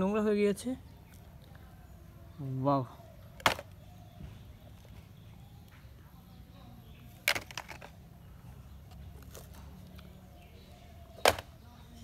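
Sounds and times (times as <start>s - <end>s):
plastic toys knocking in basket: 3.4s - 3.7s, 7.2s - 7.9s, 11.2s - 11.6s.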